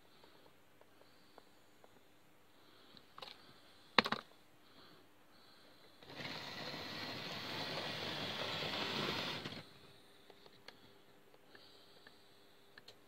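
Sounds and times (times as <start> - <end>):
model train motor whirring: 6.0 - 9.7.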